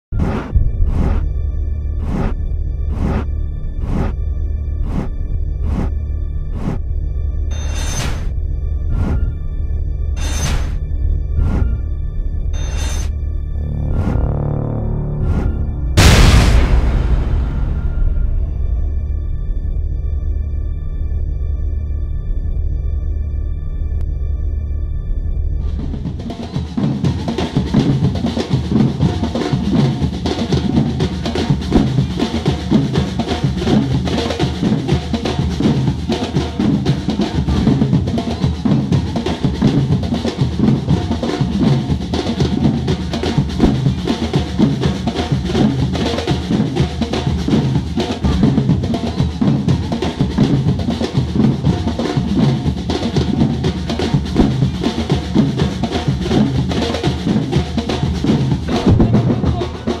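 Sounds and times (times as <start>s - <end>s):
street drum band playing: 25.8s - 60.0s.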